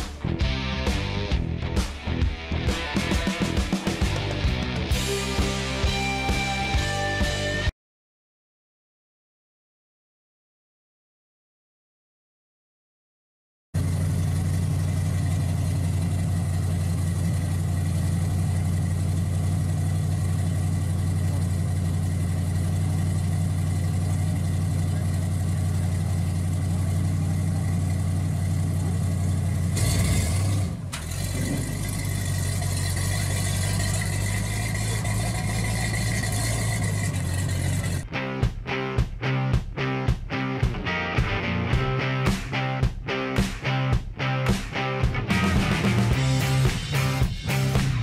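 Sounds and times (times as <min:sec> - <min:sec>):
truck engine idling: 0:13.8 - 0:38.0
truck pulling away: 0:13.8 - 0:38.0.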